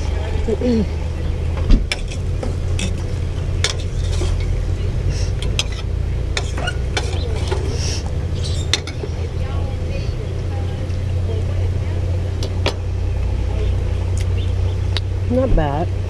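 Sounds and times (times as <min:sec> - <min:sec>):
camp stove low rumble: 0:00.0 - 0:16.0
metal utensil clinking in pot: 0:01.9 - 0:04.6, 0:05.4 - 0:07.8, 0:08.6 - 0:09.1.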